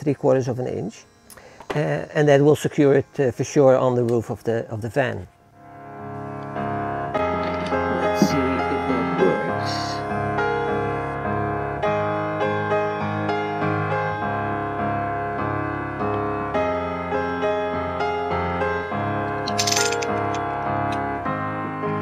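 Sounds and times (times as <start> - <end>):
piano music: 5.2 - 22.0.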